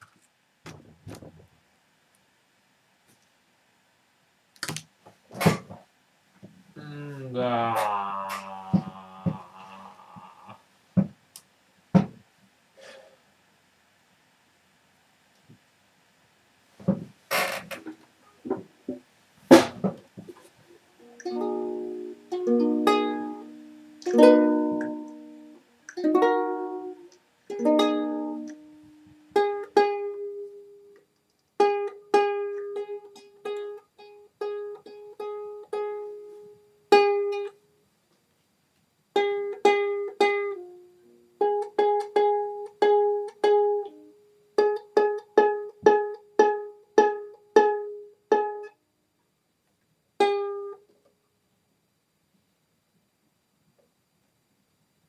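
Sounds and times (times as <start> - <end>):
ukulele strumming and plucking: 21.2 - 30.8, 31.6 - 37.6, 39.2 - 48.7.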